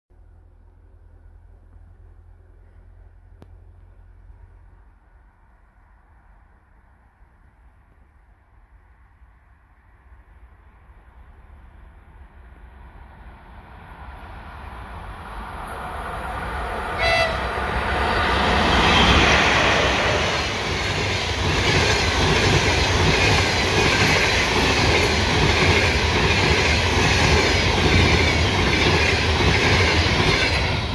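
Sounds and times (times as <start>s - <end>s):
distant train rumble and hiss: 0.2s - 30.9s
locomotive horn toot: 16.9s - 17.6s.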